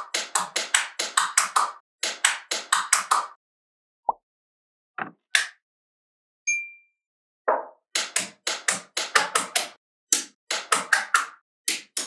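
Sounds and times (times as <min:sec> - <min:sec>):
short ringing ping: 0:06.5 - 0:07.0.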